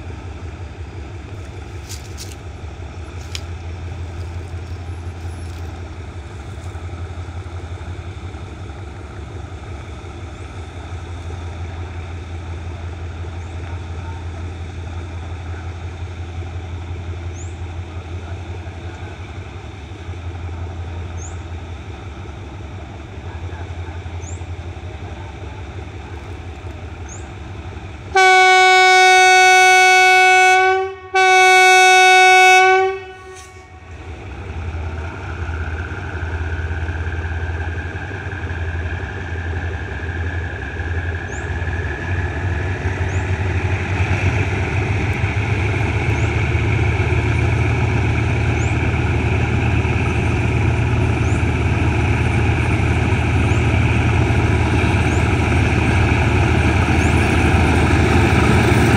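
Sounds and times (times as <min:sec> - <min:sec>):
diesel locomotive engine drone: 0:00.0 - 0:58.9
locomotive horn blasts: 0:28.1 - 0:33.9.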